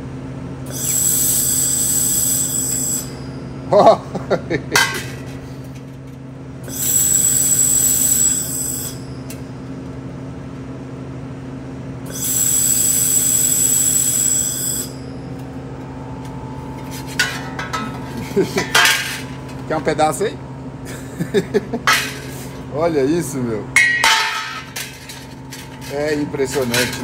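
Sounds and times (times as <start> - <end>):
steady low hum: 0.0 - 27.0
laser welder hissing bursts: 0.7 - 3.2, 6.6 - 9.0, 12.0 - 15.0.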